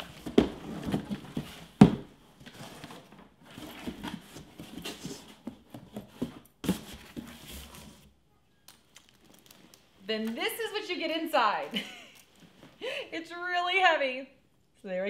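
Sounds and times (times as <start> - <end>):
cardboard flaps rustling and scraping: 0.0 - 8.1.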